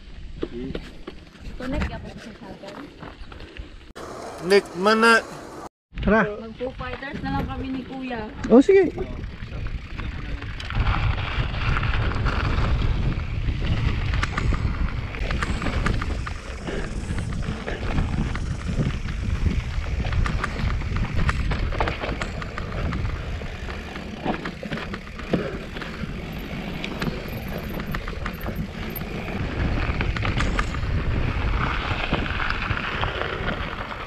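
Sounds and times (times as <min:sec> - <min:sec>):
bike rattles and clicks: 0:00.2 - 0:04.8, 0:06.8 - 0:34.0
wind buffeting microphone: 0:06.6 - 0:34.0
bike tyres crunching on gravel: 0:09.3 - 0:34.0.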